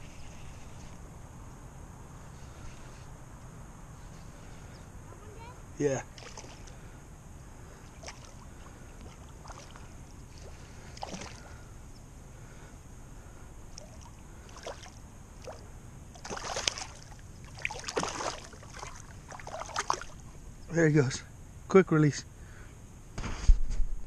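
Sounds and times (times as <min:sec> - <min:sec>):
steady low rumble: 0:00.0 - 0:23.2
water splashing: 0:06.0 - 0:06.9, 0:07.7 - 0:11.6, 0:13.7 - 0:20.3.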